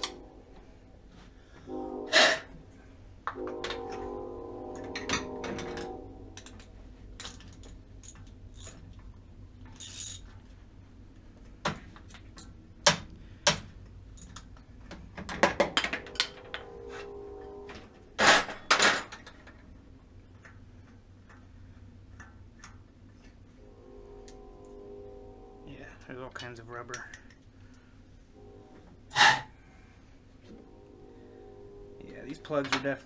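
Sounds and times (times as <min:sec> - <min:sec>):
metal hand tools clinking: 0:09.7 - 0:10.4.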